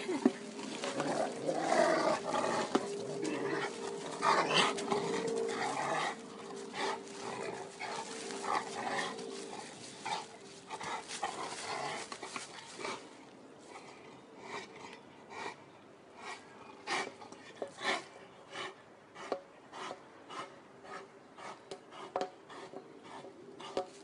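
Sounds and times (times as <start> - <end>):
rustling dry leaves: 0.0 - 13.7.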